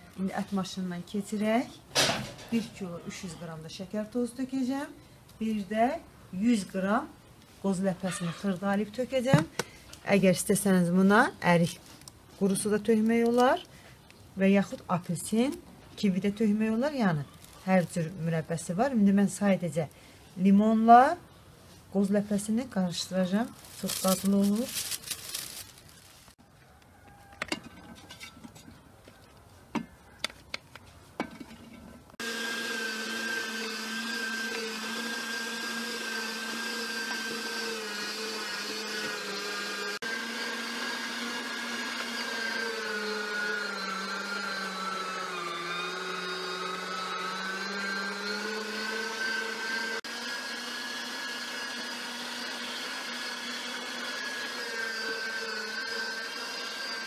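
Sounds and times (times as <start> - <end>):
electric meat grinder running: 32.2 - 57.0.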